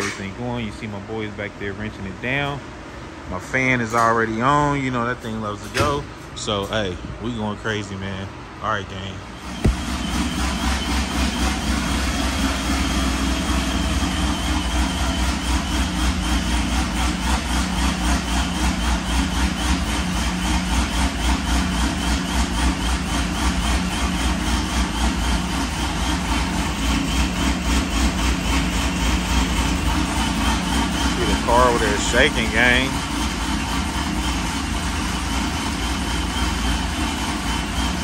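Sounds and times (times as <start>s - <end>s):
car engine choppy idle: 9.3s - 38.0s.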